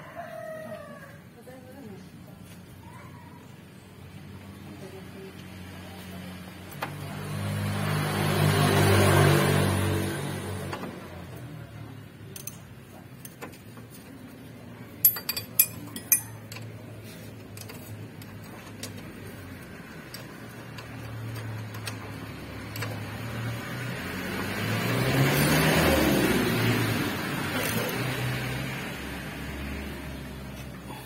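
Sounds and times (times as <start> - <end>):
ratchet wrench clicking on bolts: 12.3 - 13.7, 15.0 - 23.5.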